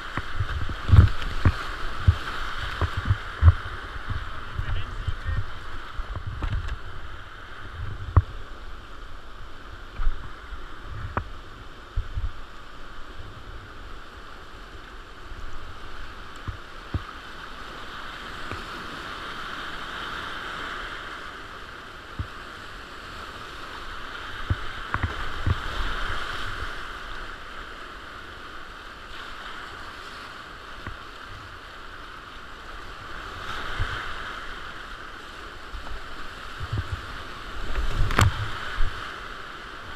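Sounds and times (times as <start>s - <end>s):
water and paddle knocking hull: 0.0s - 8.5s, 24.4s - 26.1s, 35.7s - 39.0s
whitewater rapids rushing: 0.0s - 39.9s.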